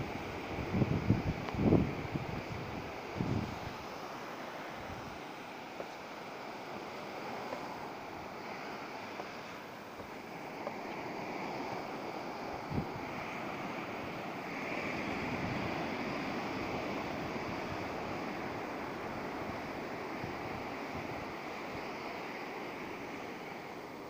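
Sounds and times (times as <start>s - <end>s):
wind buffeting microphone: 0.0s - 3.9s, 12.4s - 22.0s
surf breaking on beach: 0.0s - 24.0s.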